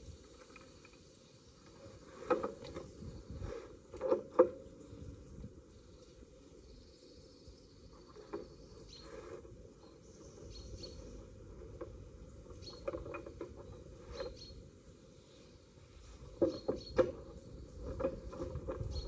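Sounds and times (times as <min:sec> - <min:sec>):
bird chirps: 0:04.7 - 0:11.3, 0:12.2 - 0:15.7.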